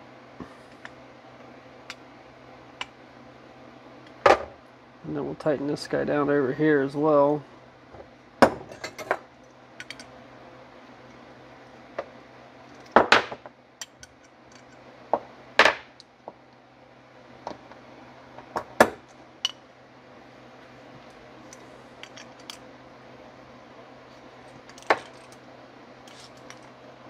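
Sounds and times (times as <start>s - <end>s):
steady low hum: 0.0s - 27.0s
metal parts clicking and clinking: 9.8s - 10.1s, 21.5s - 22.6s, 24.5s - 25.4s, 26.0s - 26.8s.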